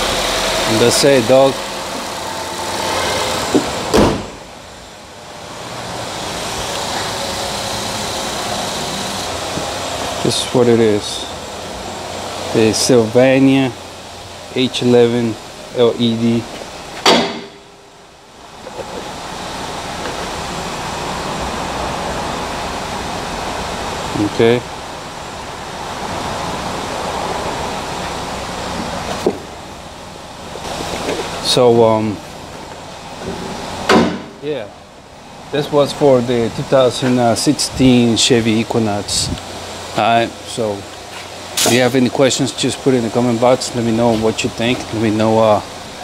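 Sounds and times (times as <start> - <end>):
car engine idling: 0.0 - 46.0
car hood slamming shut: 3.5 - 4.5, 17.0 - 17.6, 33.9 - 34.4.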